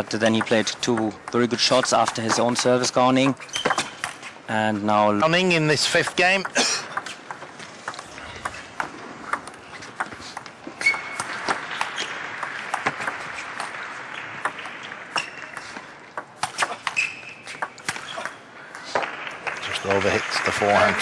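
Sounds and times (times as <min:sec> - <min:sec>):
table tennis ball clicking: 0:00.2 - 0:04.2, 0:06.0 - 0:16.6, 0:17.5 - 0:17.9.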